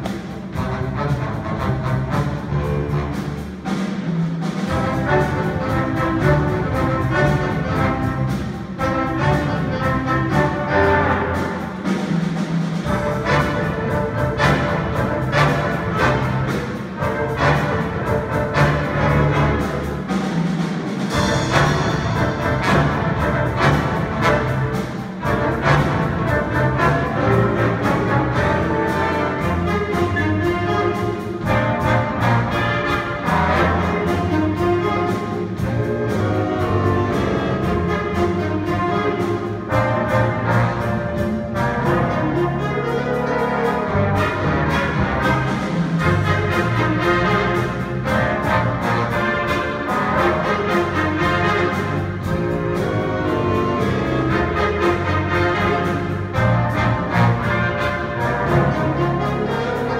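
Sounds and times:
jazz big band playing: 0.0s - 59.9s.

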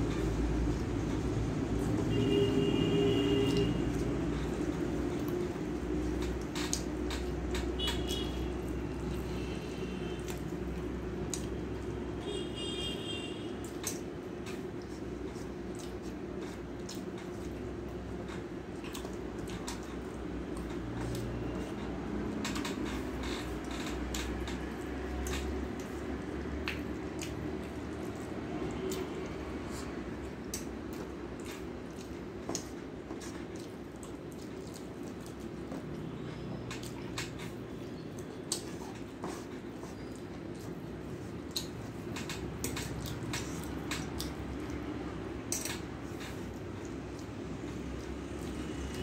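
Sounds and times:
low background hum: 0.0s - 49.0s
chewing: 3.2s - 12.0s, 13.6s - 49.0s
fingers squishing food: 23.0s - 49.0s.

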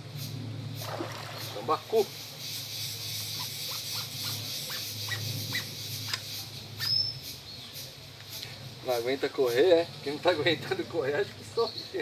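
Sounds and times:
steady low hum: 0.0s - 6.8s
bird chirps: 1.2s - 8.0s.

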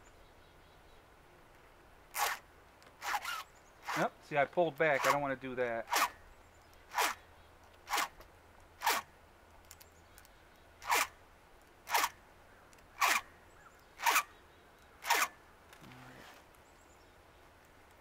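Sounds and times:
file rasping on chainsaw chain: 2.2s - 2.4s, 3.0s - 4.1s, 4.9s - 5.2s, 5.8s - 6.2s, 6.9s - 7.2s, 7.9s - 8.2s, 8.8s - 9.1s, 10.8s - 11.1s, 11.9s - 12.2s, 13.0s - 13.3s, 14.0s - 14.3s, 15.0s - 15.3s.

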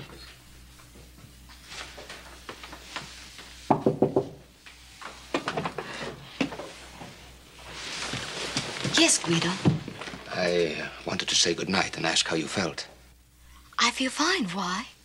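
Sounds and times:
knocking on wooden door: 3.7s - 4.4s.

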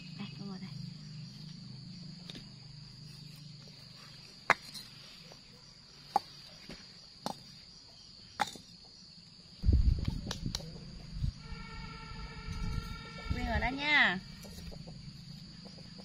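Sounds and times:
high insect drone: 0.0s - 16.0s
low hum: 9.6s - 16.0s.

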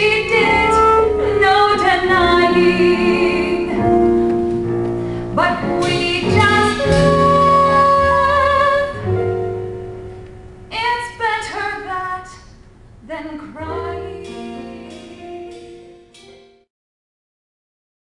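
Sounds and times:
woman singing a show tune: 10.7s - 15.4s.

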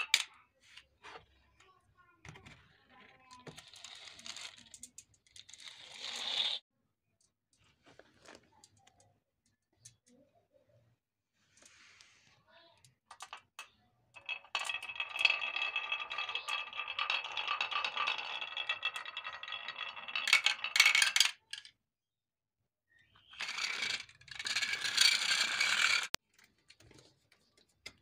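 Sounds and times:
marbles rolling on wooden track: 3.3s - 6.6s, 13.1s - 21.7s, 23.4s - 26.2s
marbles clacking: 14.2s - 21.7s, 23.4s - 26.2s.

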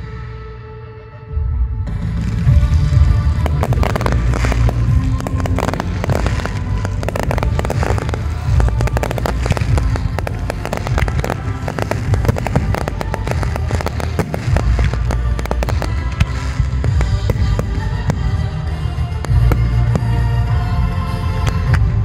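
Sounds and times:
music: 0.0s - 22.0s
fireworks bangs and crackles: 1.9s - 22.0s.

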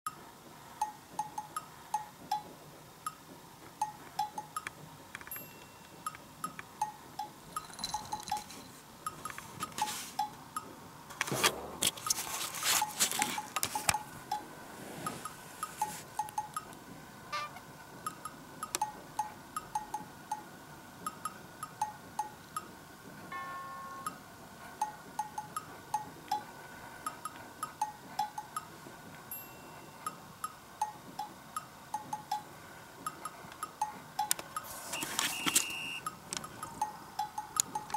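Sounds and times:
plinking bell-like music: 5.3s - 6.2s, 6.8s - 8.8s, 23.3s - 24.2s, 29.3s - 30.2s
cloth rustling: 11.2s - 14.1s.

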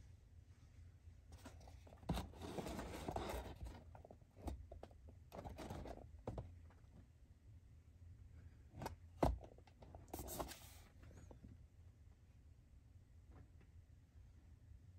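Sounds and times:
cardboard box rubbing and scraping: 1.4s - 4.6s, 5.4s - 6.0s, 10.1s - 10.8s.

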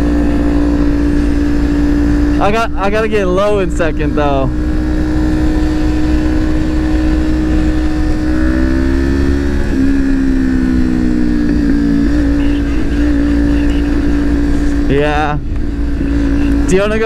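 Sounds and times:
low wind rumble: 0.0s - 17.0s
motorcycle engine running: 0.0s - 17.0s
second engine tone: 11.1s - 14.9s.

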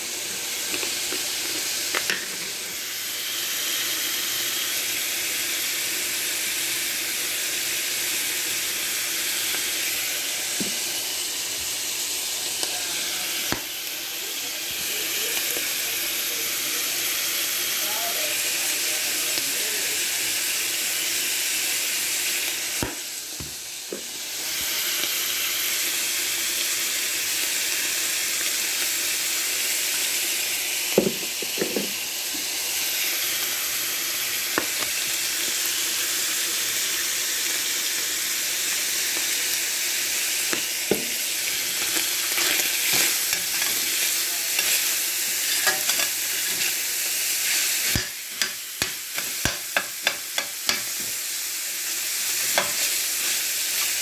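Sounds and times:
meat sizzling in a skillet: 0.0s - 54.0s
utensil scraping a pan: 41.8s - 46.8s.

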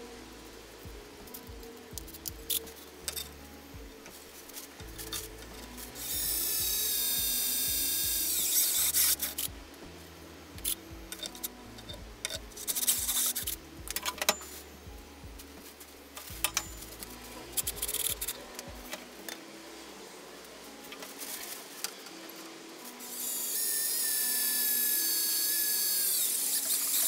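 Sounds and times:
cordless drill whining: 6.0s - 9.5s, 23.1s - 27.0s.

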